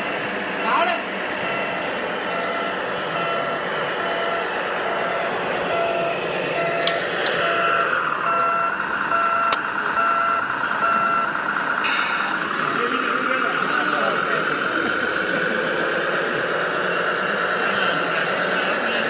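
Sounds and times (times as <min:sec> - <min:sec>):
high and low reversing beeps: 0:01.4 - 0:12.4
sharp click: 0:09.5 - 0:09.7.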